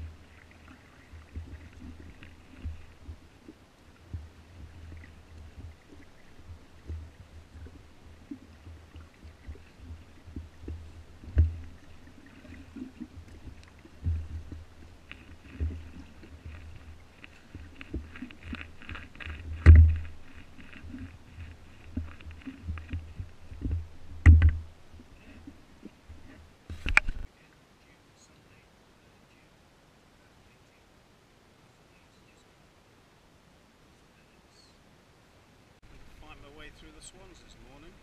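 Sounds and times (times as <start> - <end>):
oars knocking in rowlocks: 0.0 - 27.3
small clicks and splashes: 0.0 - 27.3.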